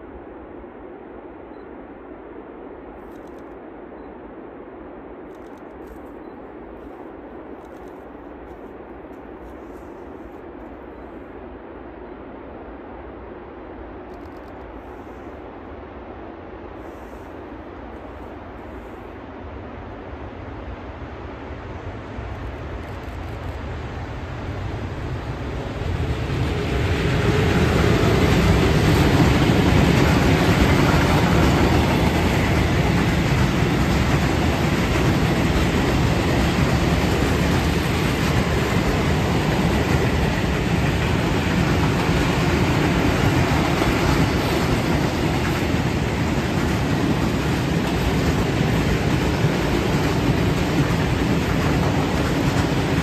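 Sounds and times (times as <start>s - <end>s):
train wheels on rails: 5.2s - 11.2s, 14.0s - 53.0s
electric locomotive passing: 14.7s - 53.0s.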